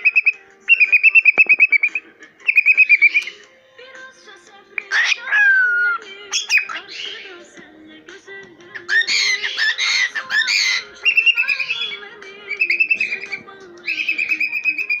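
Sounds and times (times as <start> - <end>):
cockatiel chattering: 0.0 - 3.4, 8.9 - 15.0
cockatiel whistling: 0.0 - 3.4, 4.8 - 7.4, 8.8 - 15.0.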